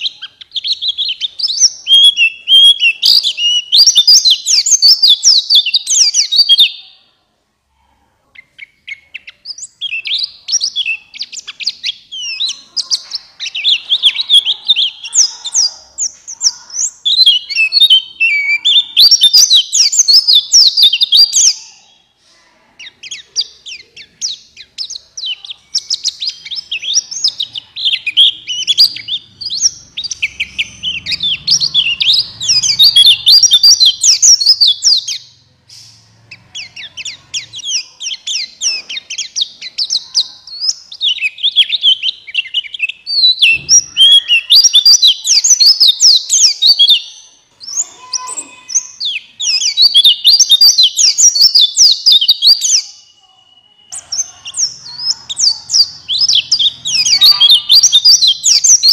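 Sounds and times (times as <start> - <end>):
bird twittering song: 0.0 - 7.0, 8.4 - 22.2, 22.8 - 58.9.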